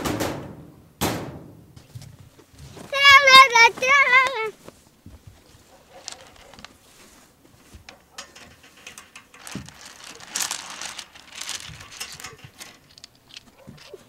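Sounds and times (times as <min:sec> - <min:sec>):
wicker basket rustling: 0:02.3 - 0:14.0
pebbles clattering: 0:08.0 - 0:14.0.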